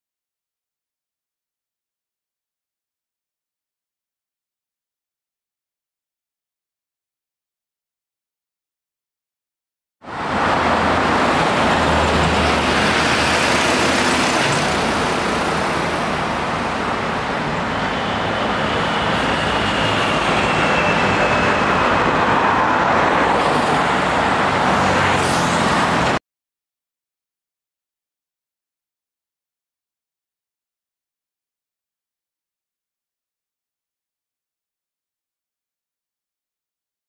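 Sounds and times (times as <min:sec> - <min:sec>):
road traffic passing: 0:10.0 - 0:26.2.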